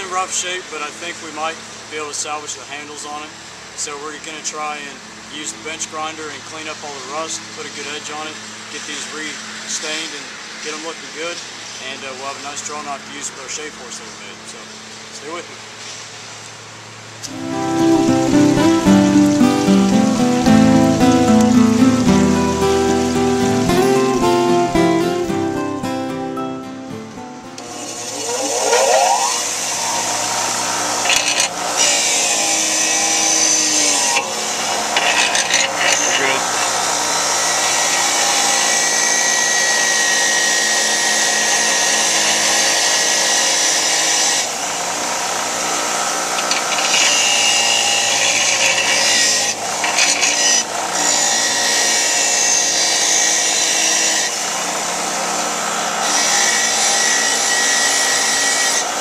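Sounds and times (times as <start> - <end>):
bench grinder motor running: 27.6 - 59.0
blade grinding on wheel: 27.7 - 44.5, 45.5 - 54.6.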